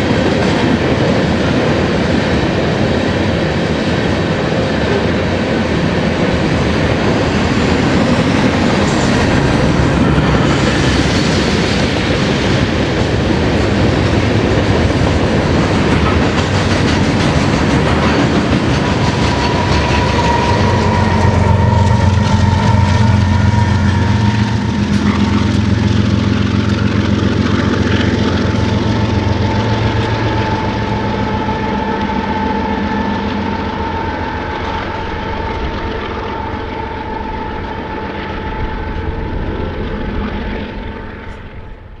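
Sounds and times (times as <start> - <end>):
diesel locomotives rumbling: 0.0 - 42.0
train wheel and rail noise: 0.0 - 42.0
steady high-pitched whine: 17.4 - 42.0.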